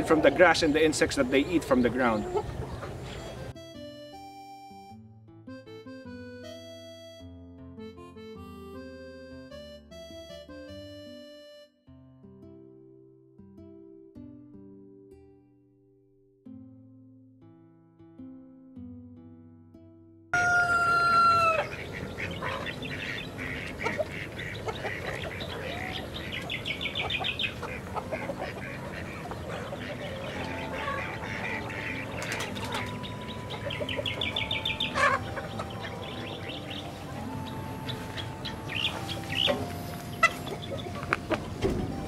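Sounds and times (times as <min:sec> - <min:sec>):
hens clucking: 0:00.0 - 0:03.5, 0:20.4 - 0:42.0
rooster crowing: 0:20.4 - 0:21.7.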